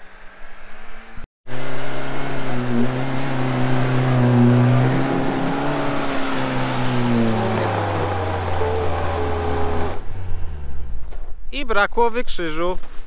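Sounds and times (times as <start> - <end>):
car engine revving hard: 1.5 - 10.9.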